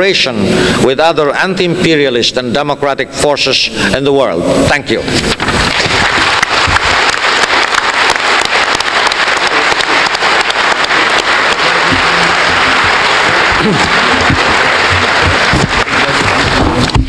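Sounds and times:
audience applauding: 5.5 - 17.0.

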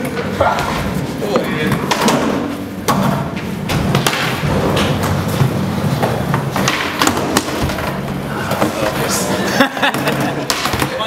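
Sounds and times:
skateboard wheels rumbling: 3.2 - 10.5.

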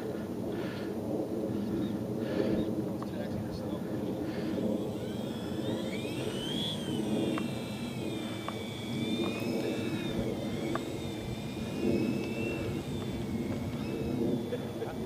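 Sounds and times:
model plane motors whining: 0.0 - 15.0.

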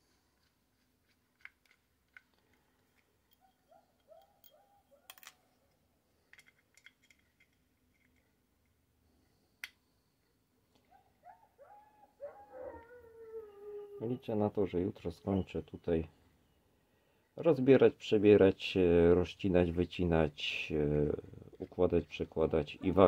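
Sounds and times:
small metallic clicks: 0.4 - 8.8.

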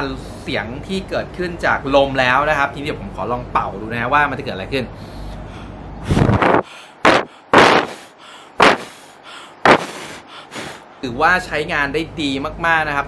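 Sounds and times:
breath puffs into microphone: 5.0 - 10.9.

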